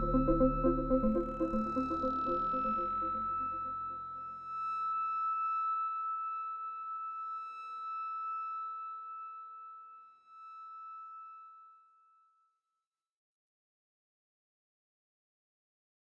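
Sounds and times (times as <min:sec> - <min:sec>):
low synth bass: 0:00.0 - 0:04.0
high synthesizer tone: 0:00.0 - 0:05.0.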